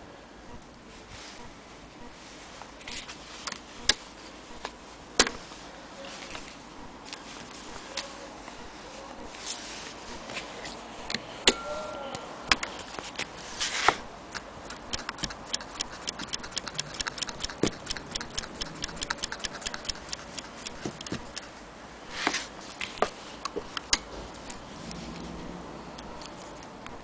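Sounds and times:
sewing machine needle ticking: 14.7 - 21.5.

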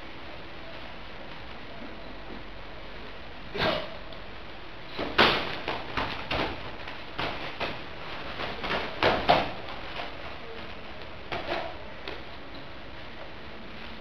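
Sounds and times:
kicks and punches on pads: 4.9 - 10.0.

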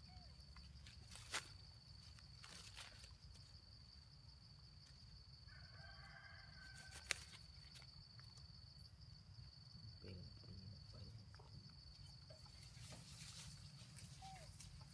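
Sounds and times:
distant animal call: 0.0 - 0.4, 14.0 - 14.9.

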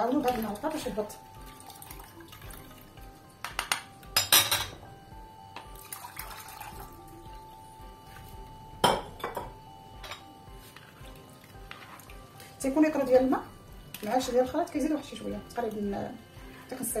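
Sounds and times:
juice pouring through sieve: 1.4 - 2.8, 5.8 - 7.2.

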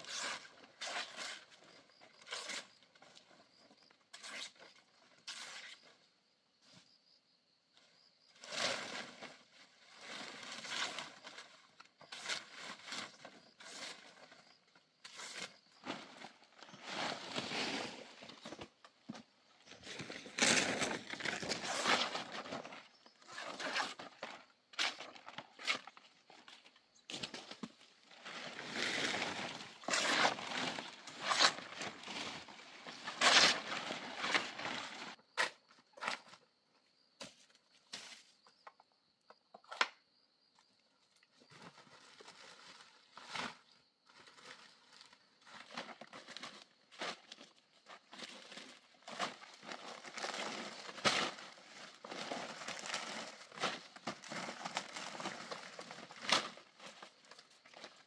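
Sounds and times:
leaves and stalks rustling: 15.2 - 24.0, 25.6 - 35.2.

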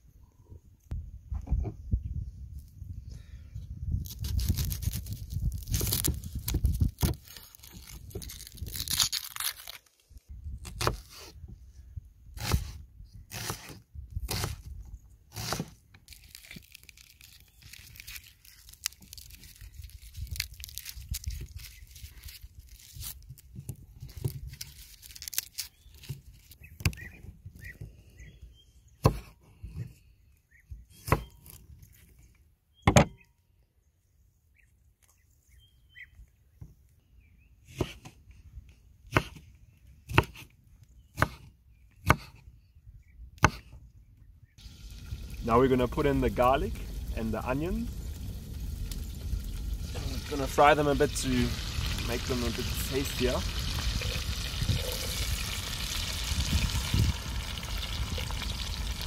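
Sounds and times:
garlic skins crackling: 4.0 - 11.1, 15.4 - 27.2, 44.6 - 59.0
knife cutting onion: 12.4 - 14.7, 15.3 - 15.8, 37.7 - 38.1, 41.2 - 42.4.

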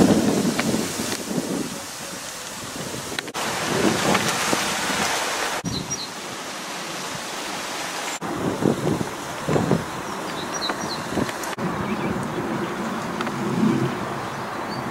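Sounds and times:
wind blowing over microphone: 0.0 - 14.9.

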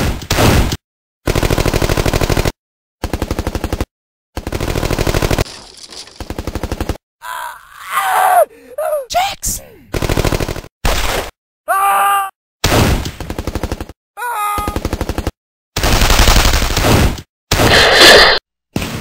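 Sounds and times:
machine-gun fire: 1.3 - 7.0, 14.8 - 17.8
man crying out in pain: 7.2 - 9.9, 11.7 - 12.3, 14.2 - 14.8.

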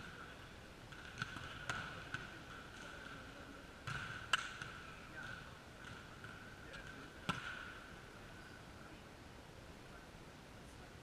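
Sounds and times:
volleyballs hit and bouncing: 0.0 - 8.3.

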